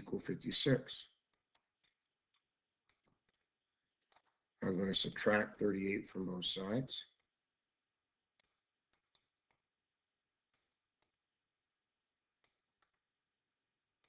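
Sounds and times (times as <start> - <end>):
stylus tapping on screen: 1.3 - 4.4, 8.3 - 9.7.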